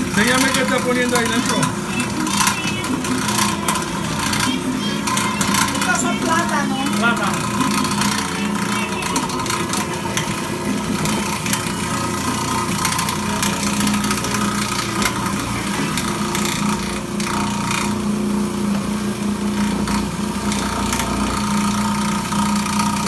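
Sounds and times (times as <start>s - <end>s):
electric grater motor hum: 0.0s - 23.0s.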